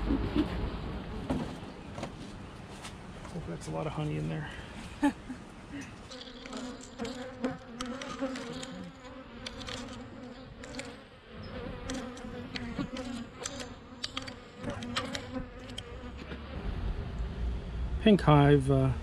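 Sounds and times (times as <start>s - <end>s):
bees buzzing: 4.9s - 17.4s
bees hitting camera ticks: 6.1s - 16.1s.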